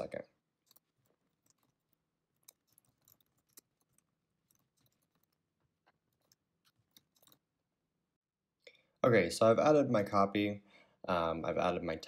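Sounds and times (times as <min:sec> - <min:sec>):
computer keyboard typing: 0:00.6 - 0:05.4.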